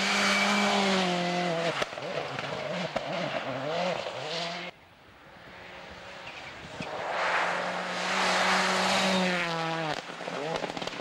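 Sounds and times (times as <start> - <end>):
rally car approaching at speed: 5.3 - 11.0.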